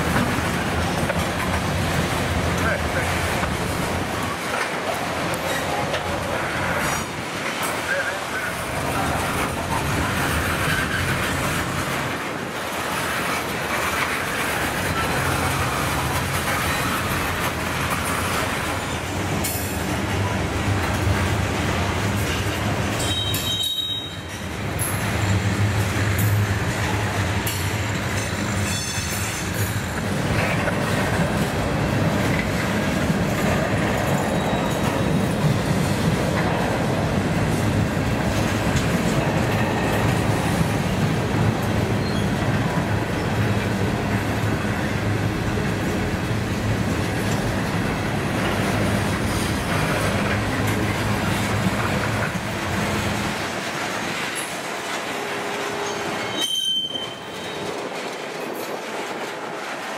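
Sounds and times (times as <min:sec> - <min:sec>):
train wheels rumbling on rail: 0:00.0 - 0:59.9
high wheel squeal: 0:23.0 - 0:24.4, 0:34.2 - 0:35.2, 0:55.8 - 0:57.7.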